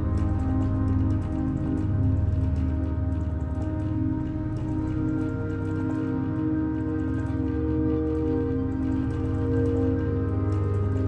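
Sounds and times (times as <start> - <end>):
relaxing music with held chords: 0.0 - 11.0.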